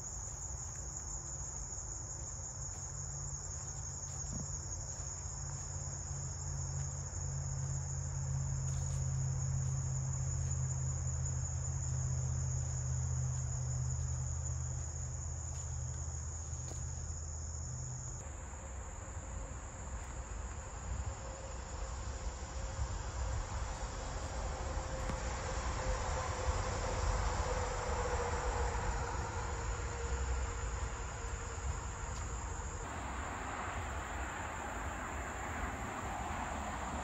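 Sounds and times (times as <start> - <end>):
insects trilling: 0.0 - 18.3, 19.0 - 37.0.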